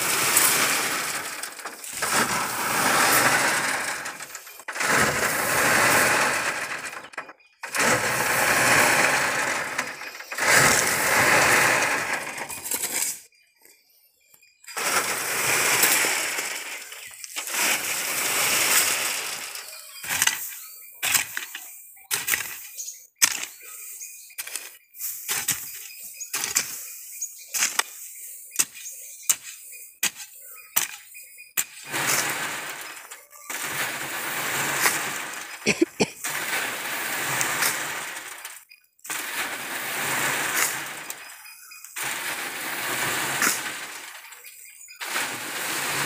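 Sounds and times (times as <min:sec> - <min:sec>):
soil pouring through sieve: 0:00.0 - 0:13.1, 0:14.8 - 0:20.5, 0:31.9 - 0:44.4, 0:45.0 - 0:46.0.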